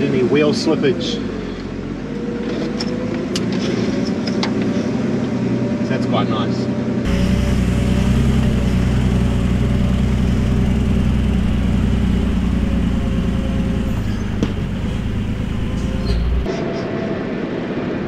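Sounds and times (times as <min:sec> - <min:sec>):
diesel truck engine running: 0:07.0 - 0:16.5.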